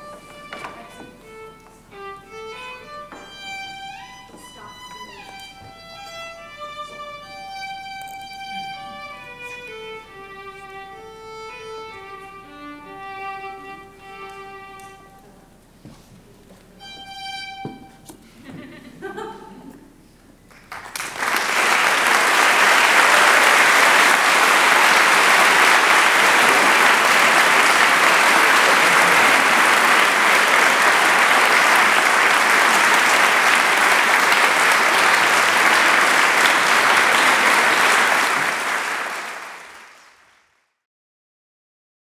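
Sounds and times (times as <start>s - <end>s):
audience applauding: 20.5s - 40.3s.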